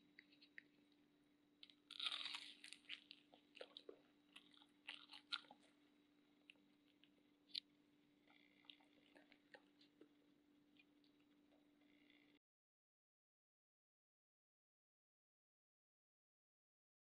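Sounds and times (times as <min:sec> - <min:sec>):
crisp bite into fried food: 0:01.6 - 0:05.6
crunching chewing: 0:01.6 - 0:05.8, 0:06.4 - 0:10.2.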